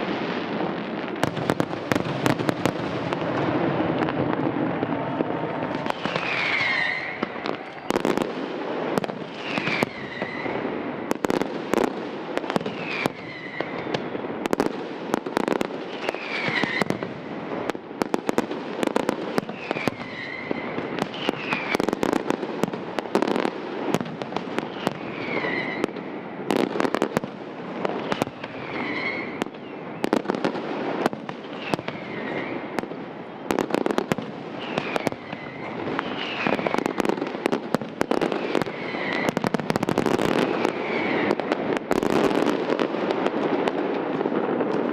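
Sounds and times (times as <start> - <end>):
fireworks bangs and crackling: 0.0 - 44.9
falling firework whistles: 5.7 - 14.6, 15.4 - 17.3, 18.8 - 22.3, 23.2 - 27.1, 28.0 - 42.8.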